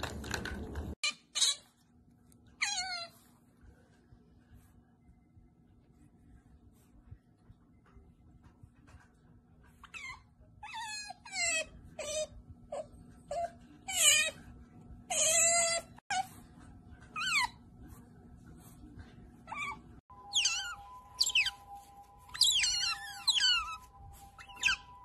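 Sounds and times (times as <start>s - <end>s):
otters squeaking: 19.5s - 25.0s.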